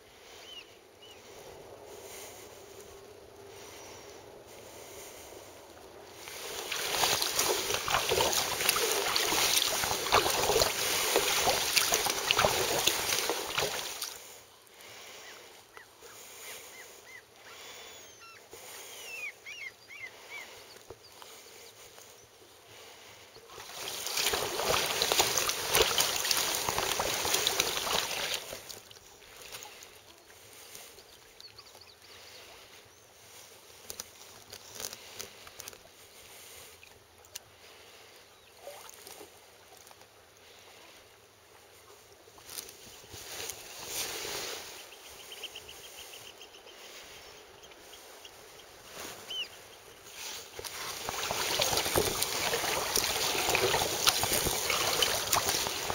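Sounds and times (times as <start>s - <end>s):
water rushing against kayak hull: 6.0s - 15.2s, 22.8s - 30.9s, 50.0s - 55.9s.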